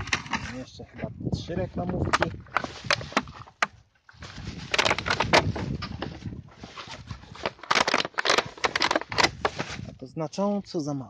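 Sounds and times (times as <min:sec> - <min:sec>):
rustling through dry reeds: 0:02.0 - 0:10.1.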